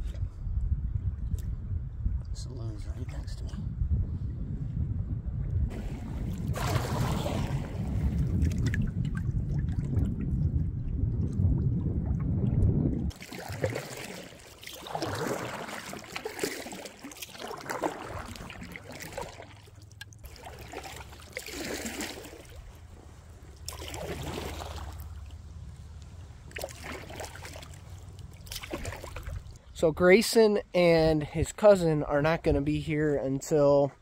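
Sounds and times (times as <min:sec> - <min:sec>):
canoe paddle strokes in water: 0:05.7 - 0:29.7
water trickling off paddle: 0:05.7 - 0:29.7.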